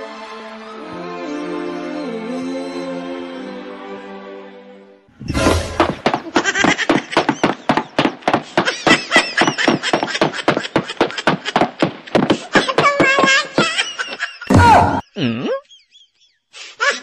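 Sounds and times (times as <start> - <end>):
loud rapid laughter: 6.0 - 15.0, 16.6 - 17.0.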